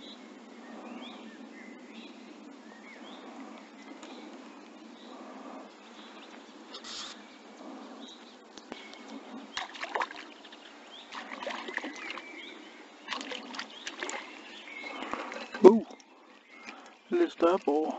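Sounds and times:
fish splashing at surface: 13.1 - 16.0.

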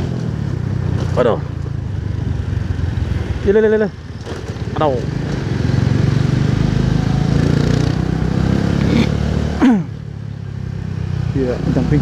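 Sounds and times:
motorcycle engine running: 0.0 - 9.1
road and wind noise: 0.0 - 12.0.

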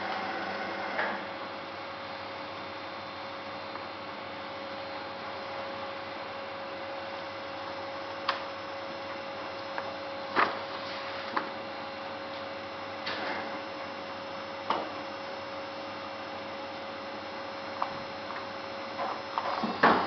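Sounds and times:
paper cutter humming: 0.0 - 1.3.

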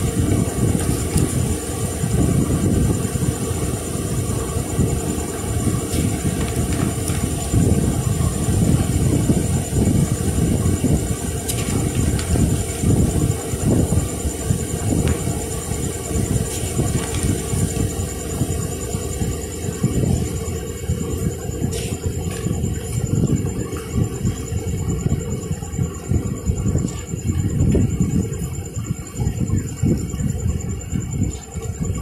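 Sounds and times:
wind buffeting microphone: 0.0 - 32.0
paper rustles and clicks: 5.9 - 7.6, 11.4 - 12.5, 16.4 - 17.8.

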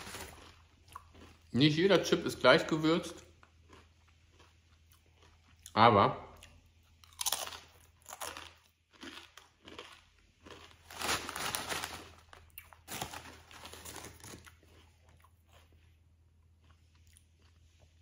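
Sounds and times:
crisp bag crinkling: 0.0 - 0.6, 10.5 - 14.8.

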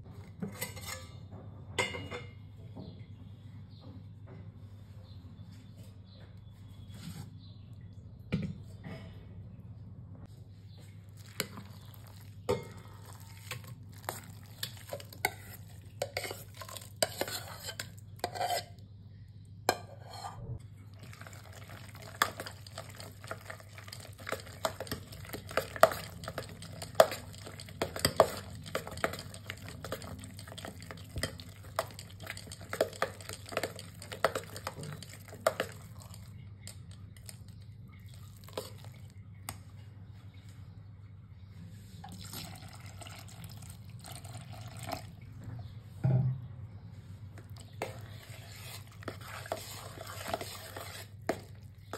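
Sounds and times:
spoon clinking and scraping bowl: 0.4 - 1.2, 11.2 - 18.8, 19.7 - 37.4, 38.3 - 38.9, 47.4 - 51.9
metal spoon beating cream in bowl: 11.2 - 18.8, 21.0 - 37.6, 47.4 - 51.9.

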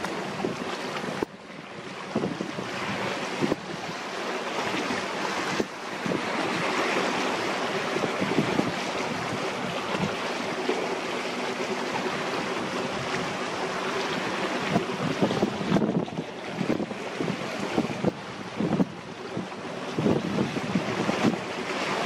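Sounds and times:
low engine drone: 0.0 - 22.0
water rushing: 0.0 - 22.0
wind buffeting microphone: 0.0 - 22.0.

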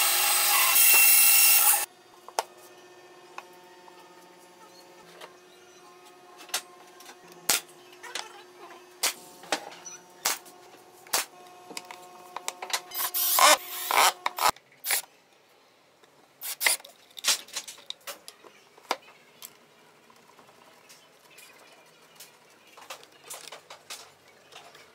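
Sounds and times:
cordless drill driving screw: 13.0 - 15.0.

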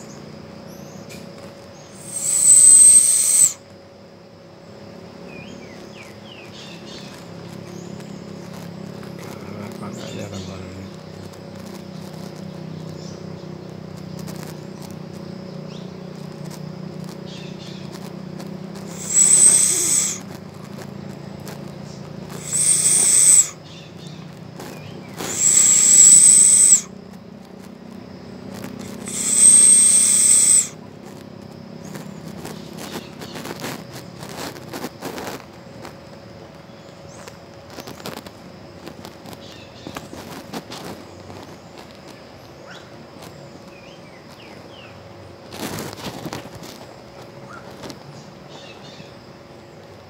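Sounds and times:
animal hissing whistle call: 1.9 - 3.6, 18.8 - 20.4, 22.4 - 23.6, 25.2 - 26.9, 28.9 - 30.8.

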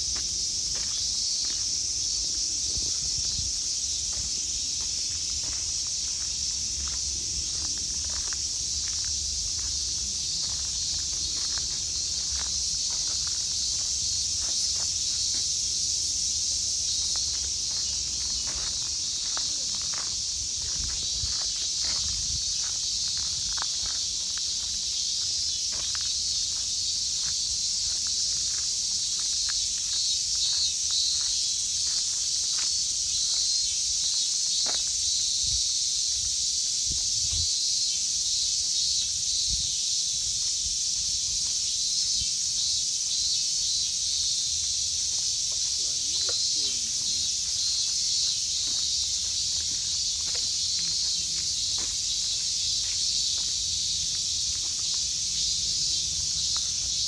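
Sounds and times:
footsteps: 0.1 - 1.8, 2.7 - 15.5, 17.0 - 33.5, 45.0 - 55.3.

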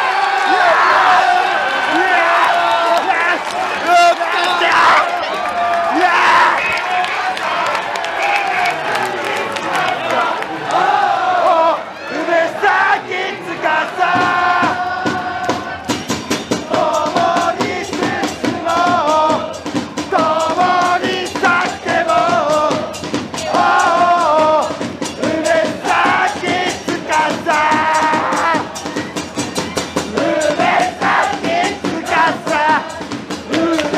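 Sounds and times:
crowd singing a chant: 0.0 - 5.2, 7.4 - 33.9
drum beating steadily: 12.2 - 33.9.

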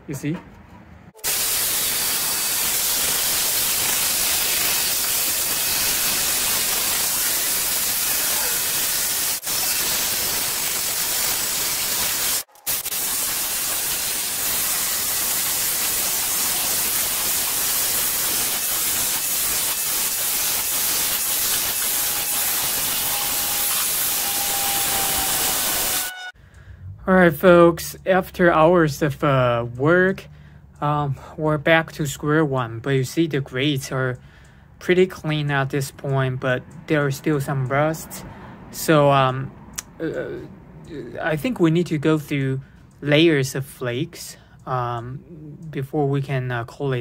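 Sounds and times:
drill wire brush scouring metal: 1.2 - 26.3.

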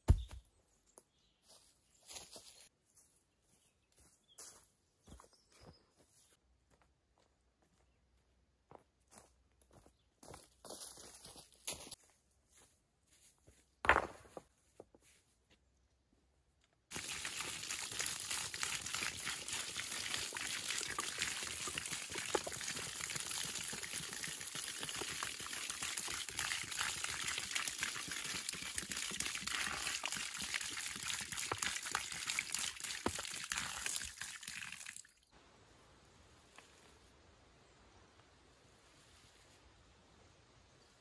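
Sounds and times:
water splattering onto dirt: 16.9 - 35.2.

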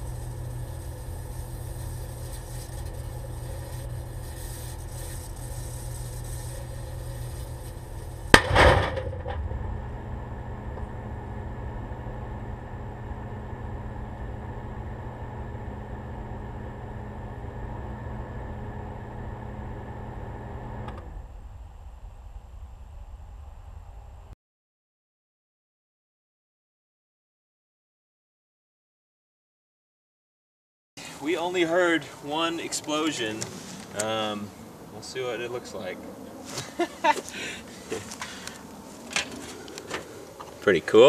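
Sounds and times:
microwave oven humming: 0.0 - 22.1
sharp bang: 8.3 - 10.1.

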